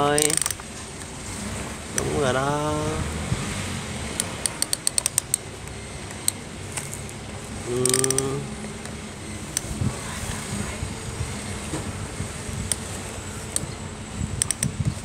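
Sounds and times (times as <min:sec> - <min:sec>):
toy arm joints clicking: 0:00.0 - 0:00.7, 0:04.2 - 0:07.1, 0:07.7 - 0:09.7, 0:13.5 - 0:13.8, 0:14.4 - 0:14.8.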